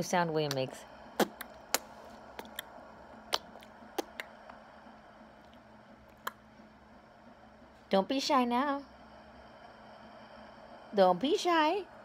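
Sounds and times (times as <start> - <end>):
baby making mouth clicks: 1.2 - 2.7, 3.3 - 4.3.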